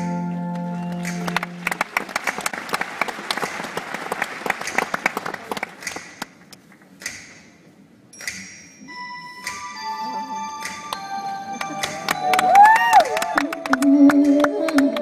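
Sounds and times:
audience applauding: 0.7s - 6.4s, 11.6s - 15.0s.

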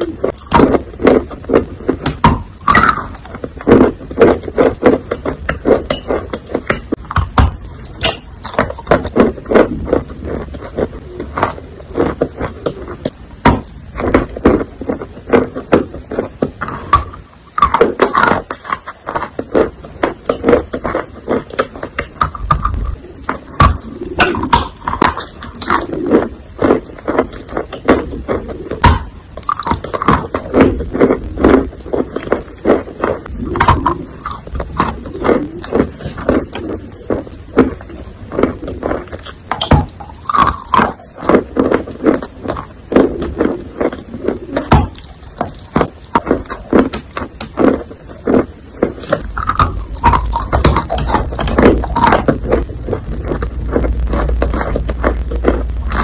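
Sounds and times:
chewing wet chalk: 14.0s - 56.0s.

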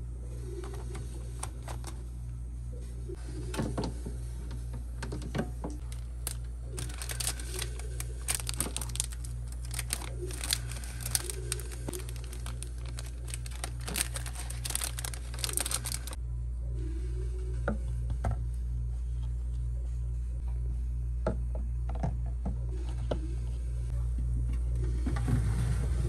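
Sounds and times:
steady low hum: 0.0s - 26.0s
plastic wrappers crinkling: 5.8s - 16.2s.

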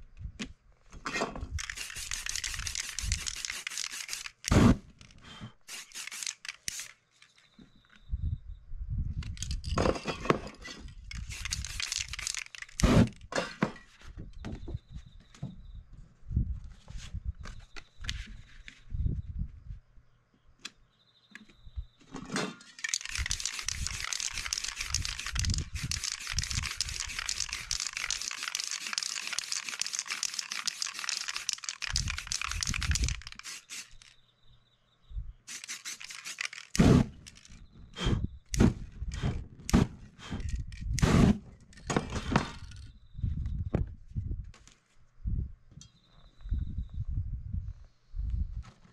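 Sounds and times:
stencil crinkling and tearing: 1.6s - 4.5s, 22.8s - 34.1s, 35.5s - 36.9s
spray paint can hissing: 1.6s - 4.6s, 5.6s - 7.0s, 11.1s - 12.9s, 22.8s - 34.1s, 35.5s - 37.0s.

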